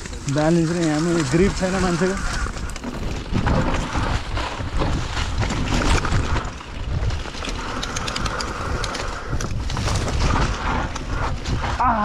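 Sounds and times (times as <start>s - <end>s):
bike rattling: 0.0s - 12.0s
bike tyres on dirt: 0.0s - 12.0s
wind buffeting microphone: 0.0s - 12.0s
sharp clicks: 7.4s - 9.8s.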